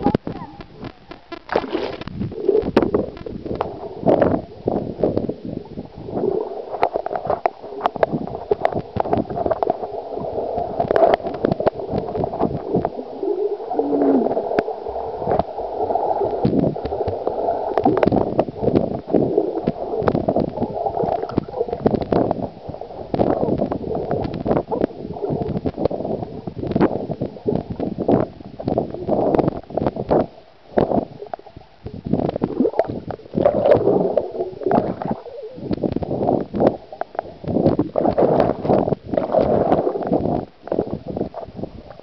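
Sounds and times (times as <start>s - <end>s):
underwater gurgling: 0.0s - 42.0s.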